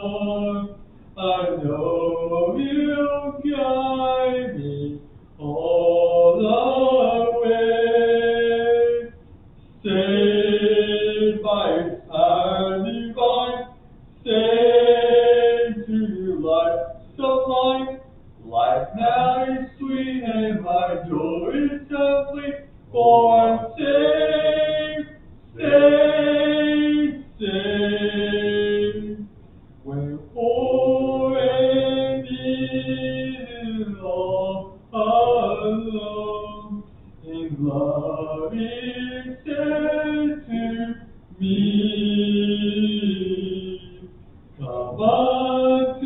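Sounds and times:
congregation singing a hymn: 0.0s - 9.2s, 9.8s - 46.0s.

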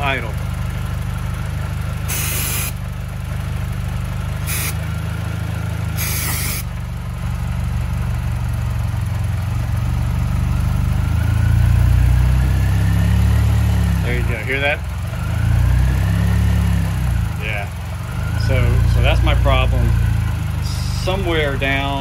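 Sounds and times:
car engine idling: 0.0s - 22.0s
aerosol spray hisses: 2.1s - 2.7s, 4.5s - 4.8s, 6.0s - 6.6s.

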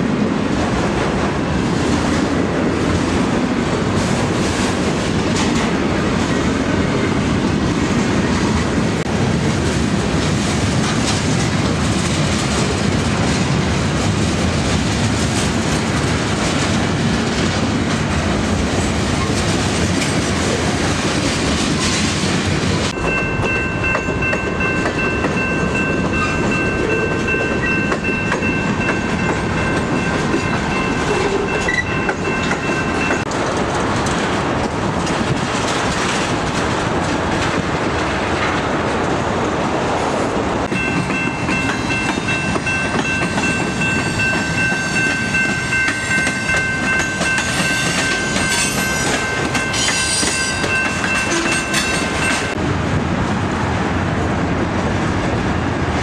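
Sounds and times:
train wheels clattering over rail joints: 9.2s - 39.3s, 40.6s - 52.6s
steady high ringing tone: 23.0s - 33.3s, 40.7s - 52.6s.

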